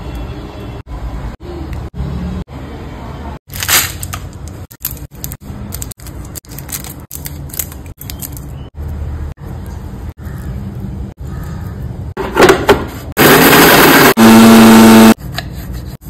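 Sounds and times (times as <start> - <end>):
plastic wrapper crinkling: 3.5 - 8.6.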